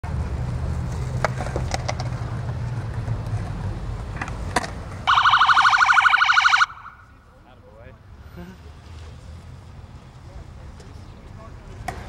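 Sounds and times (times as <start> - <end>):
vehicle engine rumble: 0.0 - 12.0
police siren wailing: 5.1 - 7.2.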